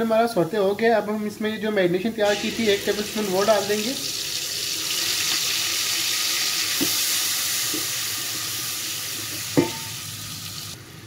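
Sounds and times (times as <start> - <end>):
garlic sizzling in hot oil: 2.2 - 10.8.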